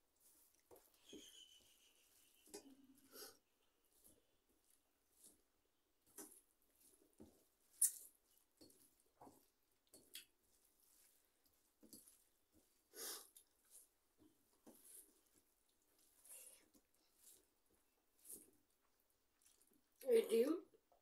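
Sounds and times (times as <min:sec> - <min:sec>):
fingers mixing rice on plate: 0:00.2 - 0:20.0
small clicks and smacks: 0:06.1 - 0:06.5, 0:07.2 - 0:10.4.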